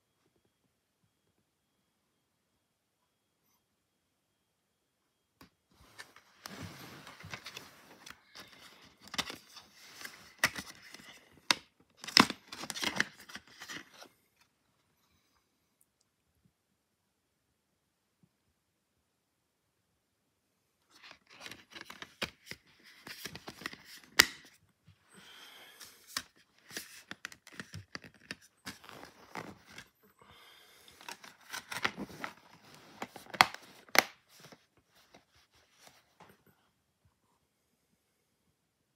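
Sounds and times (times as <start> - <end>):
plastic dvd case clicks and snaps: 10.3 - 13.8, 21.2 - 24.6, 33.1 - 34.2.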